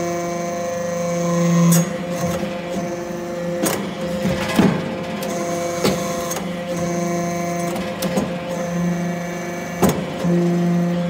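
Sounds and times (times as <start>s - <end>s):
high machine whine: 0.0s - 11.0s
hydraulic press humming: 0.0s - 11.0s.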